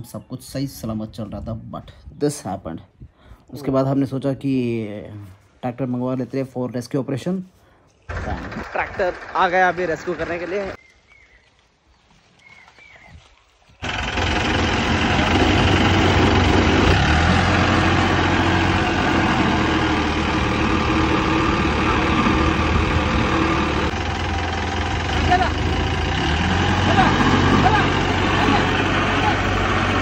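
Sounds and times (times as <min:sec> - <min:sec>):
road roller engine: 0:08.1 - 0:10.8, 0:13.8 - 0:30.0
tractor diesel engine: 0:08.1 - 0:10.8, 0:13.8 - 0:30.0.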